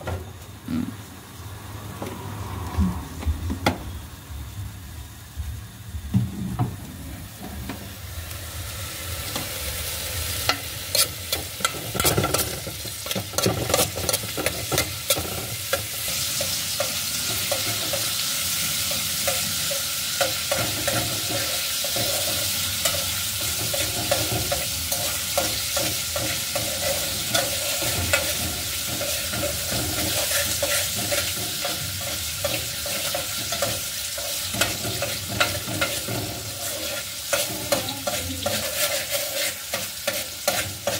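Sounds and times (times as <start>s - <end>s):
food sizzling in a pot: 3.9s - 40.9s
utensil scraping a pot: 10.5s - 18.2s, 20.5s - 40.9s.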